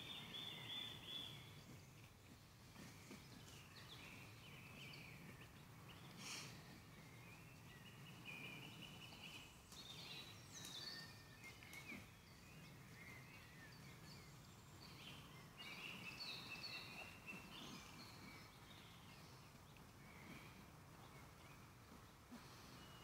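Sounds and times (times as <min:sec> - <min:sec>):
birds singing: 0:00.0 - 0:23.0
low steady background hiss: 0:00.0 - 0:23.0.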